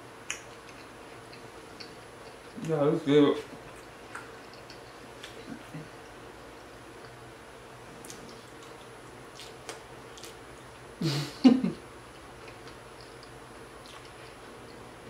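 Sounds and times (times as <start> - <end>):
wet chewing clicks: 3.7 - 5.6, 8.0 - 10.8, 12.3 - 14.8
person humming mm: 11.0 - 11.4.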